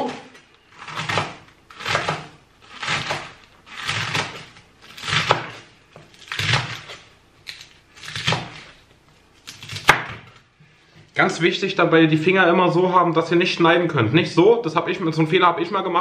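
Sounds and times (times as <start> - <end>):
knife slicing lettuce on board: 0.8 - 7.0, 8.0 - 8.8, 9.4 - 10.3.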